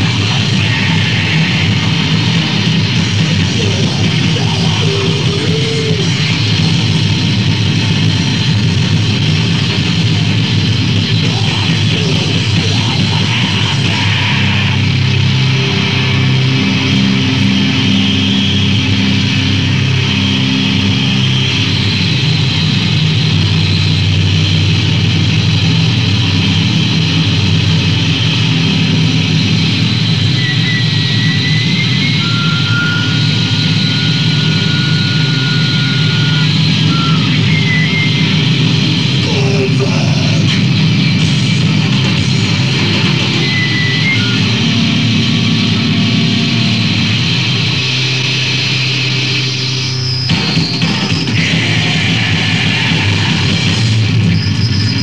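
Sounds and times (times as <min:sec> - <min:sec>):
distorted guitar noise: 0:00.0 - 0:55.0
thin high whistle: 0:30.3 - 0:38.7, 0:43.2 - 0:44.8.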